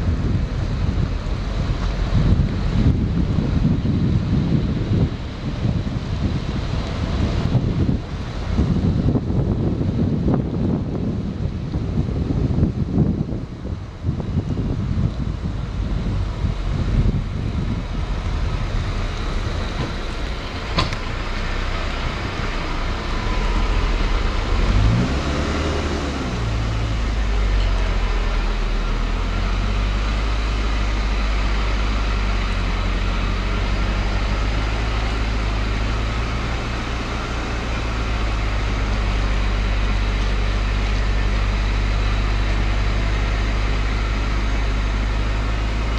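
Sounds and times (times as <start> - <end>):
car engine and tyres droning: 0.0 - 45.9.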